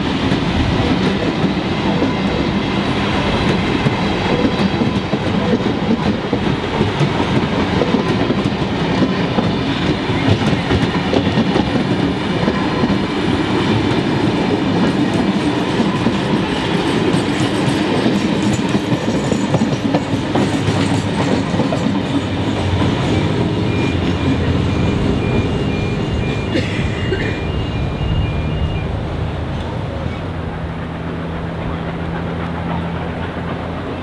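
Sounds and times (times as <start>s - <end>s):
wheels clacking over rail joints: 0.0s - 26.5s, 29.5s - 34.0s
train wheels rumbling on rails: 0.0s - 34.0s.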